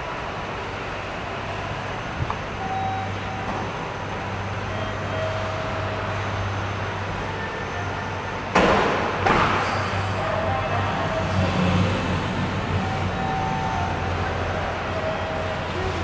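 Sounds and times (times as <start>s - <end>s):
train low hum: 0.0s - 16.0s.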